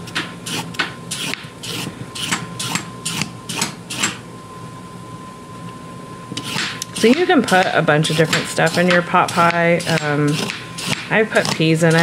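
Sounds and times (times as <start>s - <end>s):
peeler scraping a carrot: 0.4s - 4.1s, 6.4s - 12.0s.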